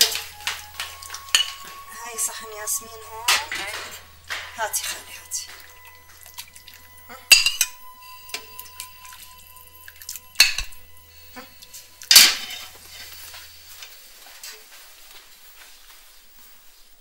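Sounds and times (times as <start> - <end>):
metal ladle clinking on plates: 0.0 - 9.2, 11.4 - 13.3.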